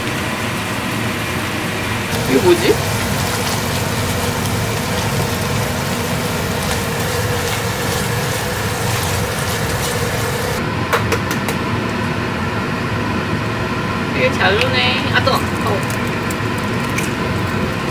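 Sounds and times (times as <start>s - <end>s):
ventilation fan humming: 0.0s - 17.9s
meat sizzling in a frying pan: 2.1s - 10.6s.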